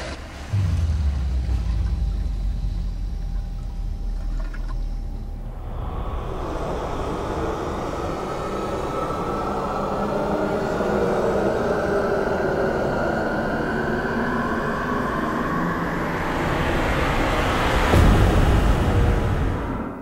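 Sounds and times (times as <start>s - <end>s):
low rumbling drone: 0.0s - 20.0s
loud hit with deep boom: 0.5s - 5.4s.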